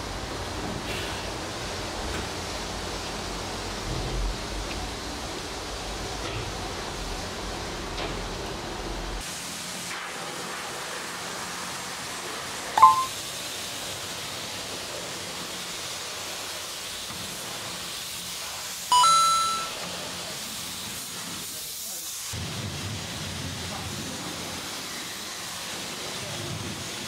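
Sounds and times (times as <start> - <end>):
high-pressure water spray hissing: 9.2 - 27.0
short bright chime: 12.8 - 13.1, 18.9 - 19.8.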